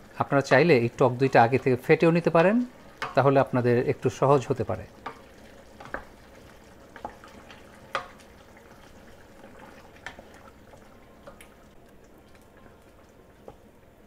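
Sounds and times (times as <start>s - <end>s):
low steady bubbling: 0.0s - 14.0s
wooden spatula stirring in a pot: 0.1s - 14.0s.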